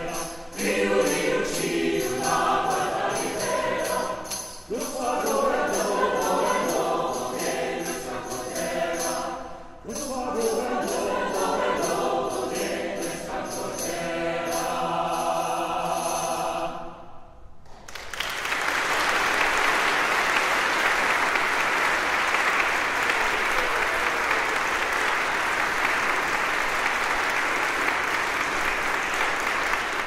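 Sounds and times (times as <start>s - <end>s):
audience applause: 17.7s - 30.0s.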